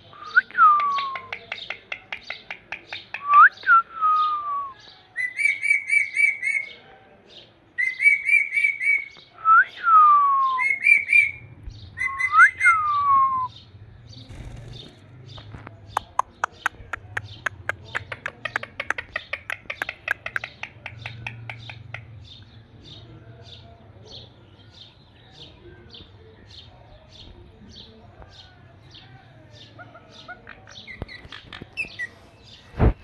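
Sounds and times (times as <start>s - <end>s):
parakeets chirping: 13.6s - 22.5s.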